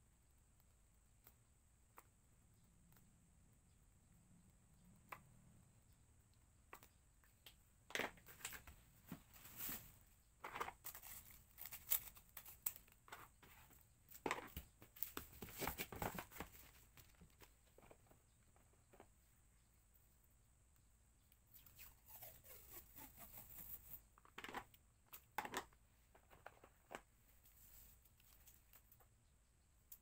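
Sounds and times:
packaging crinkling and rustling: 10.4 - 13.3.

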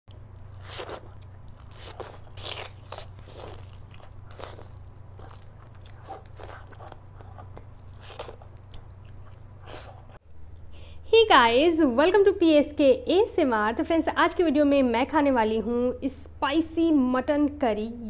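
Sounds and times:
person chewing food: 0.1 - 10.6
steady low hum: 0.1 - 18.0
crunches while eating: 0.2 - 10.2.

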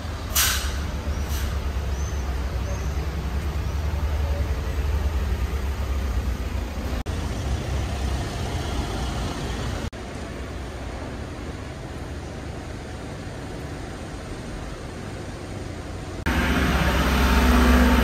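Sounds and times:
cars driving by: 16.2 - 18.0.

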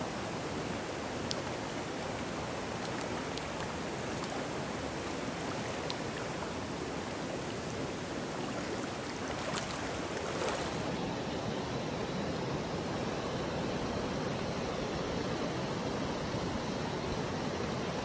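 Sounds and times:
stream flowing over rocks: 0.0 - 11.0
faint ticks: 1.2 - 6.6.

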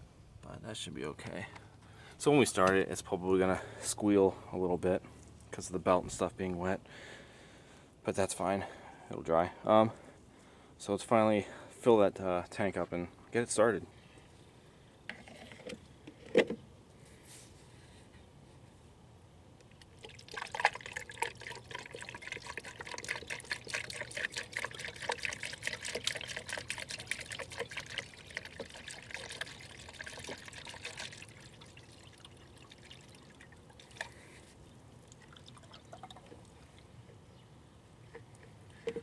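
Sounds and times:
liquid pouring into plastic tank: 19.8 - 34.2, 35.0 - 36.8.

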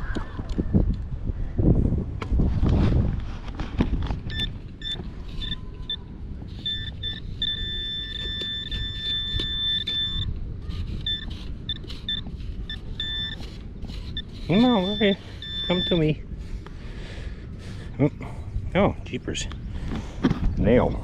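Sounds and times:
low steady rumble: 0.0 - 21.0
probe scraping in sand: 2.5 - 16.7
metal detector beeping: 4.3 - 16.2.

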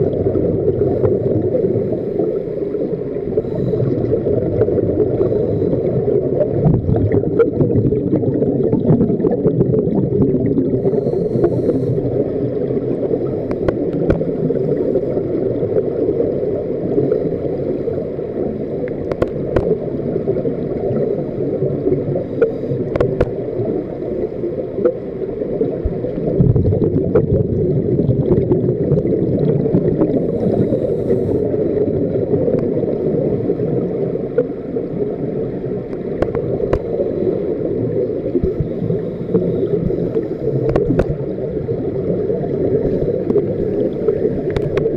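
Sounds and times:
bubbles gurgling: 0.0 - 44.9
underwater regulator breathing: 5.0 - 6.2, 10.7 - 12.3, 22.2 - 23.4, 30.0 - 31.6, 38.4 - 41.1.

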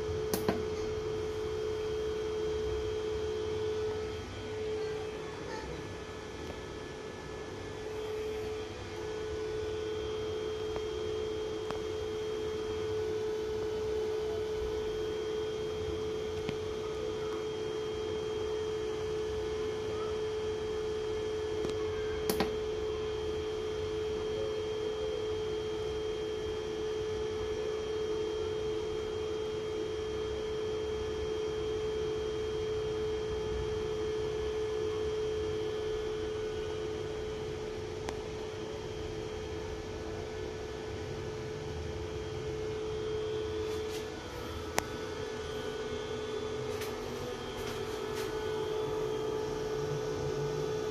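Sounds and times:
steady electrical hum: 0.0 - 50.9
sharp click: 0.3 - 0.6.

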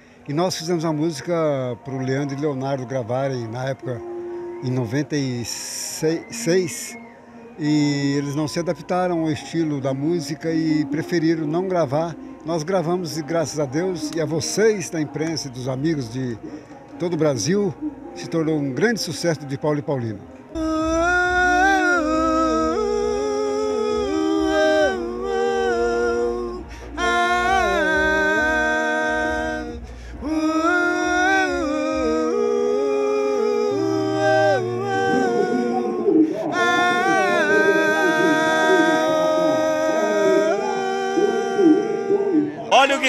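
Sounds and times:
men singing a cappella: 20.5 - 43.0.

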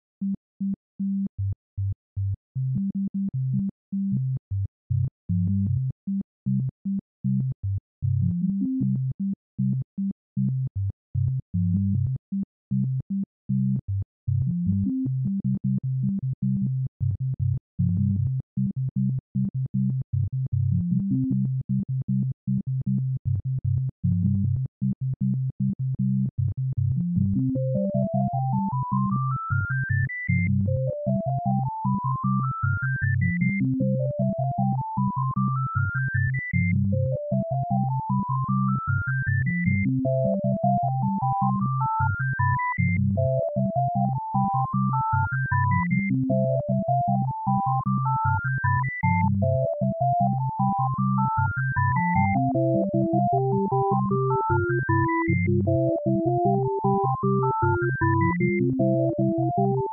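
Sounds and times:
pulsing synth bass: 26.8 - 59.9
lower synth melody: 52.1 - 59.9.

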